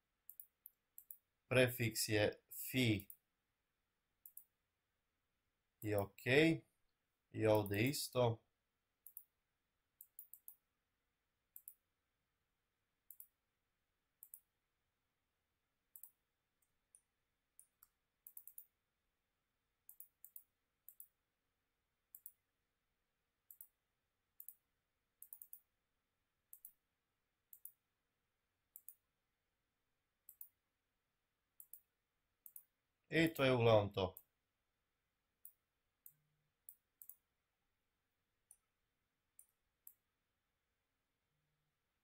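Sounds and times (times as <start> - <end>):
computer mouse clicks: 0.3 - 1.3, 3.0 - 3.2, 4.2 - 4.6, 9.0 - 9.3, 10.0 - 10.6, 11.5 - 11.8, 13.1 - 13.4, 14.2 - 14.5, 15.9 - 18.7, 19.9 - 21.2, 22.1 - 22.4, 23.5 - 23.8, 24.4 - 25.7, 26.5 - 26.8, 27.5 - 27.8, 28.7 - 29.0, 30.2 - 30.6, 31.6 - 32.7, 35.4 - 37.3, 39.4 - 40.1.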